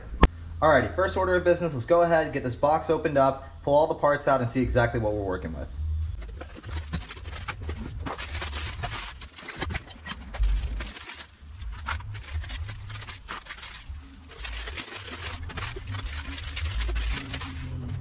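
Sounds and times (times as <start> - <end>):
plastic crinkling and rustling: 6.1 - 18.0
cardboard box handling: 6.2 - 18.0.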